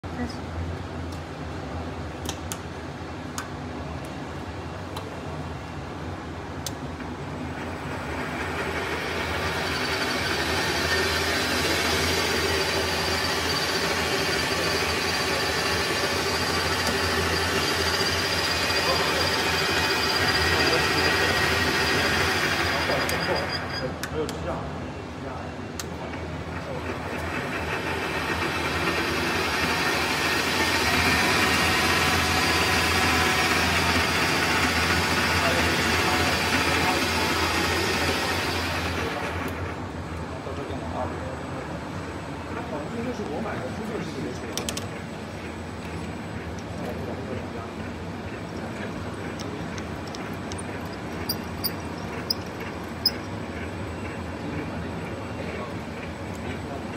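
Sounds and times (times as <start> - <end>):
lathe motor running: 7.4 - 23.8, 26.6 - 39.9, 45.0 - 56.9.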